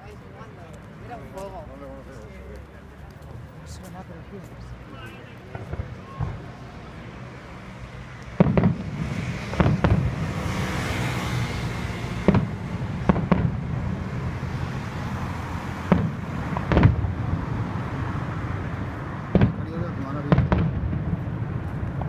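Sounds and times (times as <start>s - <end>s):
fireworks bursting with bangs: 5.4s - 6.6s, 8.3s - 11.4s, 12.2s - 14.4s, 15.8s - 17.4s, 19.3s - 22.0s.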